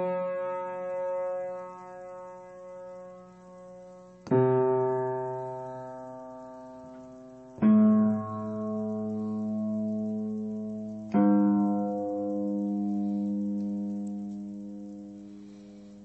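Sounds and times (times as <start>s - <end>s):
sustained keyboard chords: 0.0s - 16.0s.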